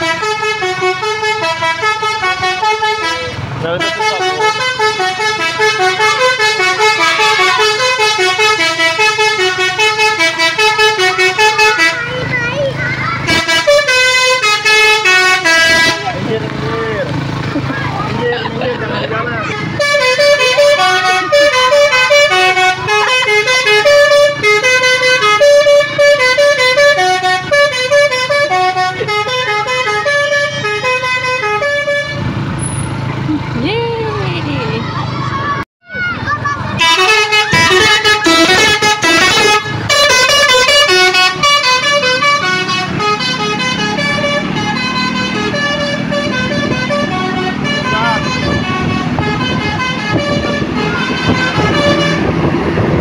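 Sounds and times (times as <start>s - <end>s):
musical air horn tune: 19.6s - 32.3s, 36.8s - 52.5s.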